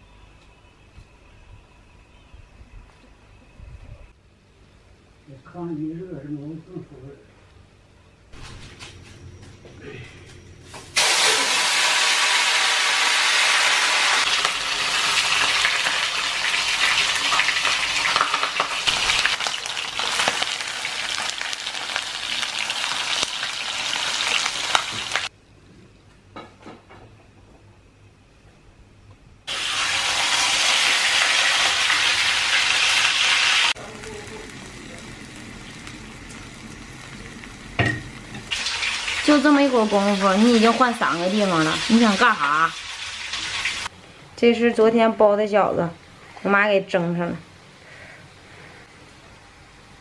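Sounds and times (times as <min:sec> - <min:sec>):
food sizzling in hot oil: 0:10.8 - 0:25.3, 0:29.5 - 0:43.9.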